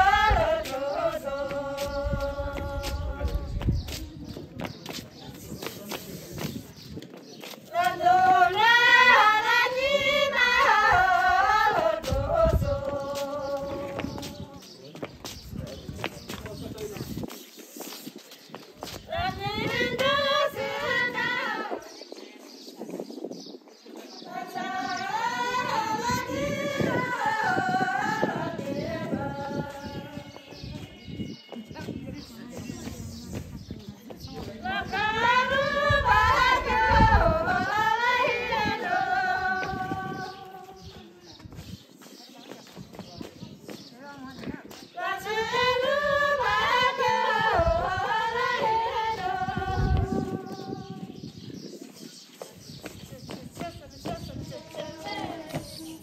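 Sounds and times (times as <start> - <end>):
person singing unaccompanied: 0.0 - 3.9, 7.7 - 14.8, 19.0 - 22.0, 24.3 - 31.2, 34.3 - 41.1, 44.9 - 51.3, 53.2 - 56.0.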